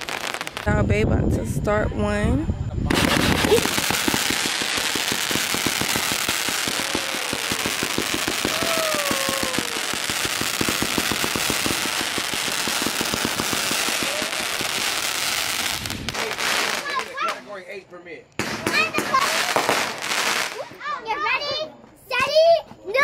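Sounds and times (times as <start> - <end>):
firework crackling pops: 0.0 - 0.9, 2.8 - 17.6, 18.4 - 20.9
firework sparks hissing: 0.0 - 1.0, 2.8 - 17.6, 18.4 - 20.8.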